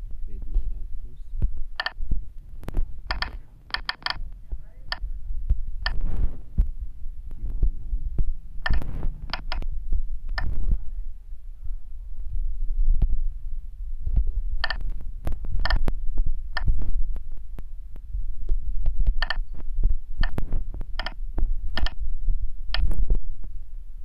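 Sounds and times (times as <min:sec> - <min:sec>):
low rumble: 0:00.0 - 0:24.0
fingers thumping on phone: 0:02.7 - 0:04.2, 0:08.6 - 0:09.7, 0:14.6 - 0:15.9, 0:19.1 - 0:19.4, 0:20.2 - 0:22.0
electronic key beeps: 0:03.1 - 0:04.2.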